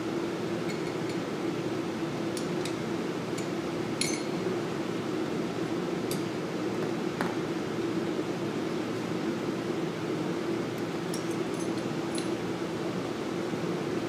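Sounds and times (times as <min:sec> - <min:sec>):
steady low hum: 0:00.0 - 0:14.0
wrench clinking on metal: 0:03.4 - 0:04.3, 0:11.1 - 0:12.4.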